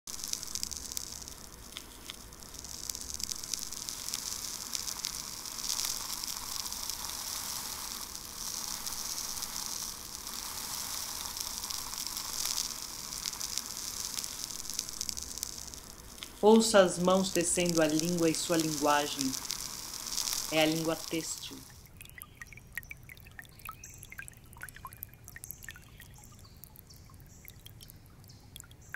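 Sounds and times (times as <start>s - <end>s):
crackling hiss: 0.0s - 28.9s
faint clicks: 10.8s - 16.4s.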